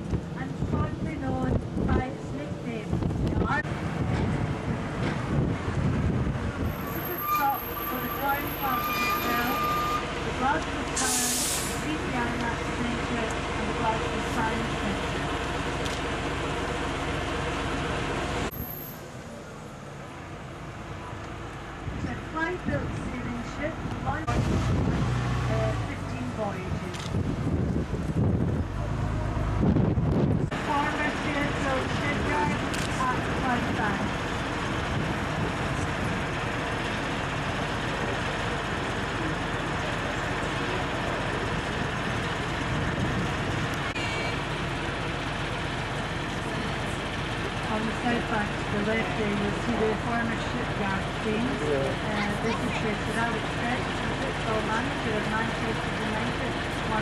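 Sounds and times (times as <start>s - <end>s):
road vehicle rumble and hiss: 0.0s - 57.0s.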